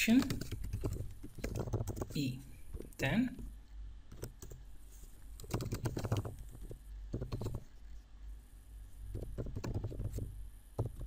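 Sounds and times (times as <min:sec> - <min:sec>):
typing on computer keyboard: 0:00.2 - 0:02.2, 0:04.1 - 0:04.6, 0:05.4 - 0:07.7, 0:09.1 - 0:11.0.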